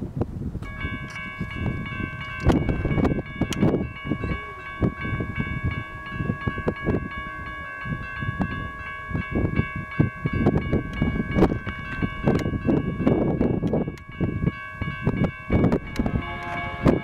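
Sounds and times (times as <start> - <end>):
low gusty rumble: 0.0 - 17.0
railroad crossing bell ringing: 0.6 - 17.0.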